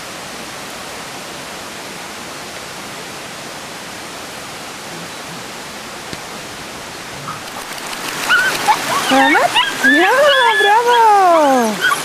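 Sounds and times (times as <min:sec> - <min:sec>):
steady rushing hiss: 0:00.0 - 0:12.0.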